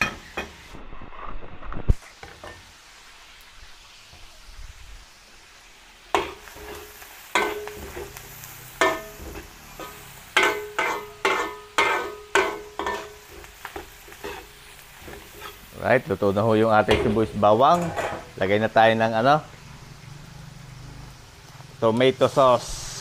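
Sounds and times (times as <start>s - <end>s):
food sizzling: 0.0s - 23.0s
metal ladle scraping wok: 6.2s - 15.8s, 17.4s - 18.4s.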